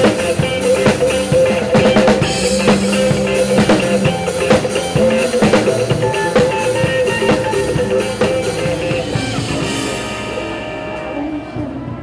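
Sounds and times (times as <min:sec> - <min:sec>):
drum kit hits: 0:00.0 - 0:12.0
sustained guitar and keyboard chords: 0:00.0 - 0:12.0.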